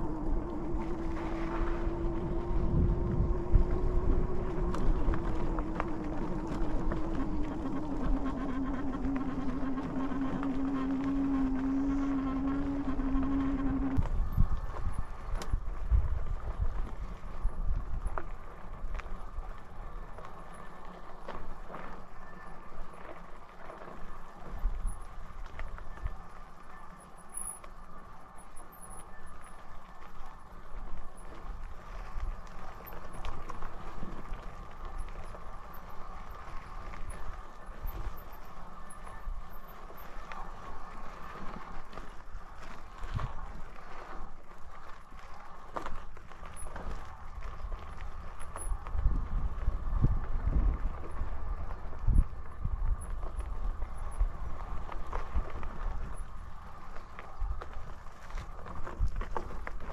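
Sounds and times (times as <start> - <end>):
electric motor whine: 0.0 - 15.4.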